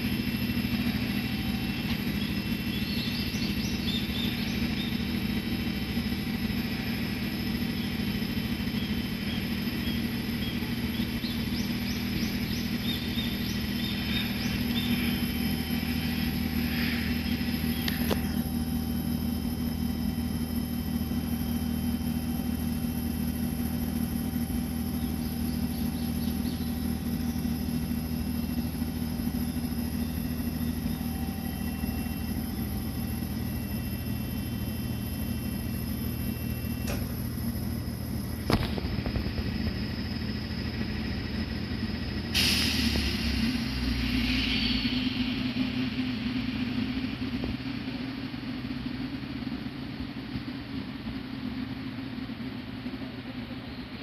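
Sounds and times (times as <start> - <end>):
train equipment low hum: 0.0 - 54.0
burst of hiss: 42.3 - 45.5.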